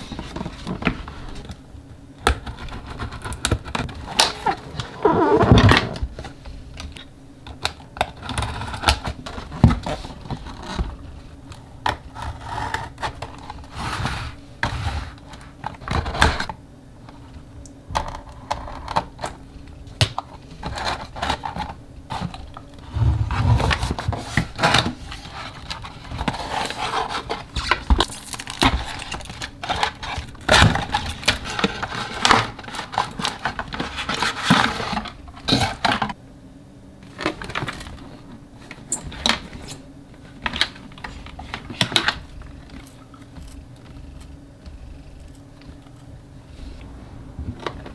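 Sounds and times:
cardboard box scraping out: 0:04.4 - 0:06.0, 0:22.8 - 0:24.5.

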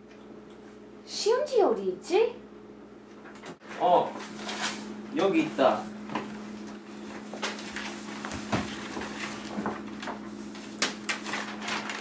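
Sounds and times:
faint electrical hum: 0:00.0 - 0:12.0
paper rustling: 0:04.2 - 0:05.4, 0:06.7 - 0:12.0.

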